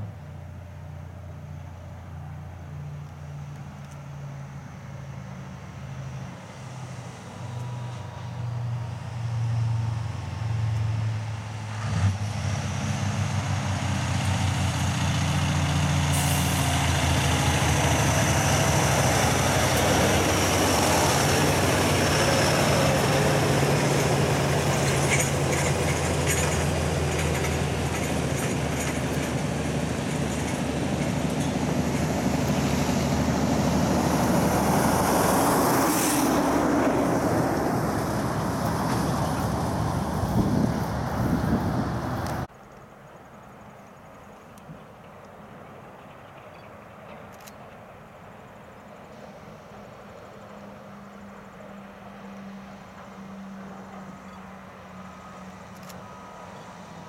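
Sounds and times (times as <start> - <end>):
tyre noise on road: 6.2 - 42.8
diesel truck engine under load: 9.9 - 42.5.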